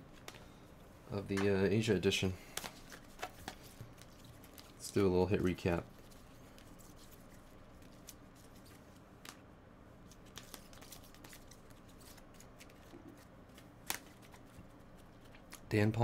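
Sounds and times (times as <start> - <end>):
trading cards clicking and rustling: 2.5 - 9.4, 10.1 - 15.9.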